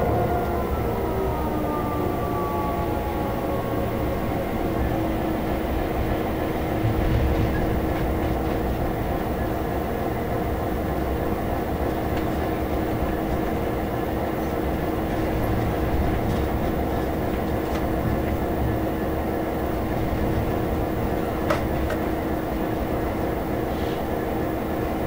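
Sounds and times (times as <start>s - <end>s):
diesel locomotive engine running: 0.0s - 25.0s
wheels rumbling on track: 0.0s - 25.0s
wheels clicking over rail joints: 19.9s - 22.2s.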